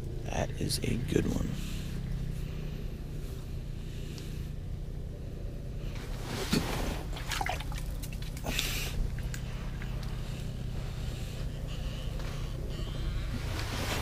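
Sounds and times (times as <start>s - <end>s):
steady low hum: 0.0s - 14.0s
handling scrapes: 5.9s - 7.4s, 13.3s - 14.0s.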